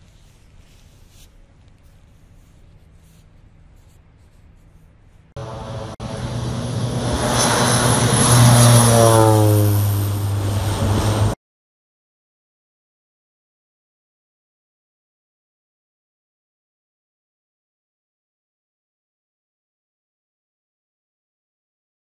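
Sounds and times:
propeller plane engine: 0:05.4 - 0:11.4.

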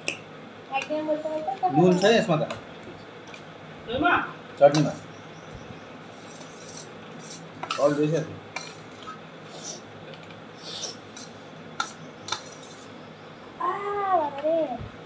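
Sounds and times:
metal spoon scraping steel plate: 0:06.1 - 0:09.8, 0:10.6 - 0:12.9.

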